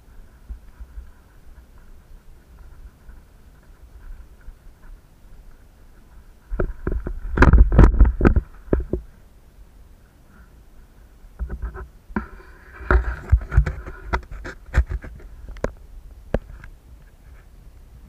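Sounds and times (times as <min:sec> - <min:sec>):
bike knocks and rattles: 0:06.5 - 0:09.1.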